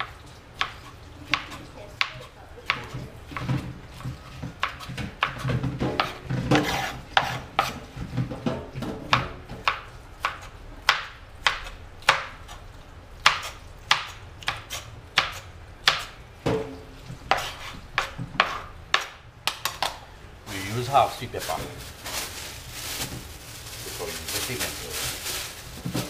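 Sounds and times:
knife chopping on plastic board: 0.0 - 12.4, 13.2 - 16.7, 17.3 - 20.0.

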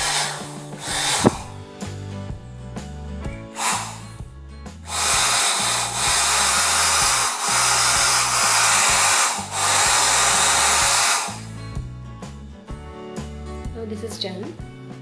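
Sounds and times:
hair dryer blowing: 0.0 - 1.6, 3.5 - 4.2, 4.9 - 11.5.

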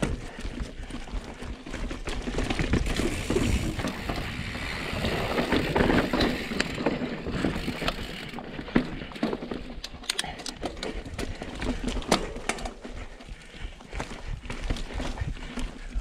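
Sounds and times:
steady rushing noise: 0.0 - 8.4
bike rattling: 0.0 - 16.0
bike tyres rolling over rock: 0.0 - 16.0.

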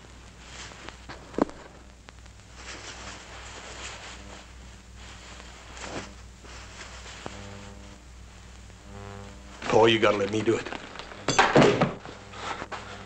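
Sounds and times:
low steady hum: 0.0 - 13.0
cloth rustling: 2.5 - 7.8.

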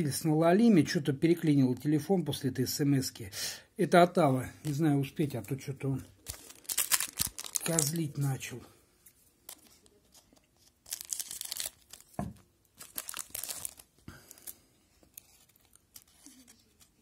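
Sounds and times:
foil wrapper tearing and crinkling: 6.2 - 8.2, 10.7 - 17.0.

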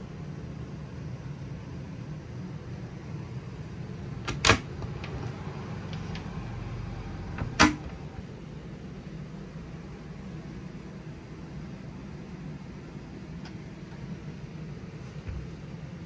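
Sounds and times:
steady low hum: 0.0 - 16.0
wardrobe doors clicking open: 4.2 - 6.5, 7.1 - 8.2.

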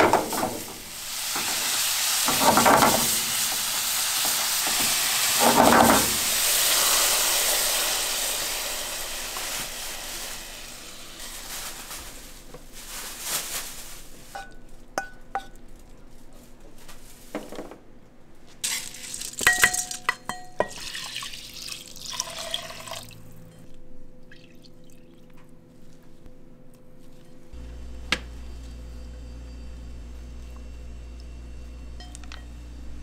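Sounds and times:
glassware and dishes clinking: 18.7 - 22.8
water running from tap: 20.7 - 23.2.

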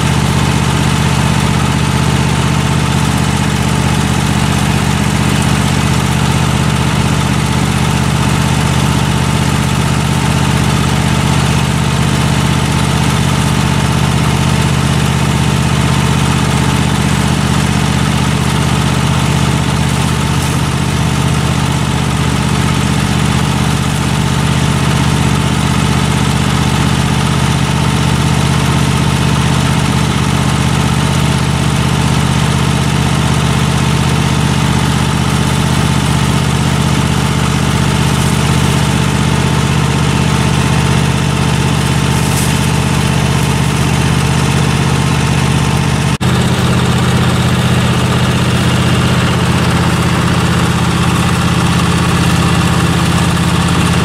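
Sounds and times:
lawn mower engine idling: 0.0 - 54.0.

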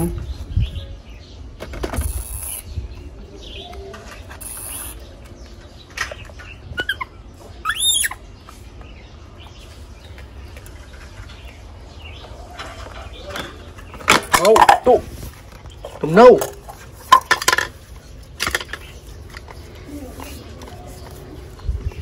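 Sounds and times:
baby monkey squeaking: 6.7 - 8.2.

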